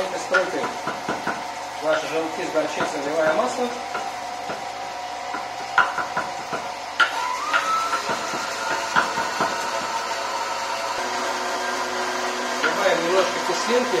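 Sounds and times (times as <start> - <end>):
blender motor running: 0.0 - 14.0
sharp knocks: 0.4 - 2.1, 5.3 - 7.2, 7.9 - 10.0.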